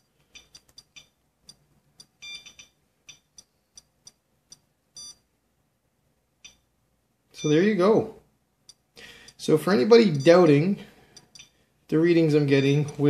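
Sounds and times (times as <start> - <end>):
geiger counter clicking: 0.2 - 5.2, 6.4 - 6.7, 11.1 - 11.6.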